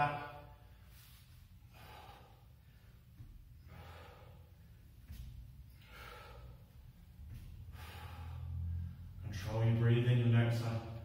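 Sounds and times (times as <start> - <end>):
man breathing out forcefully: 0.6 - 9.2.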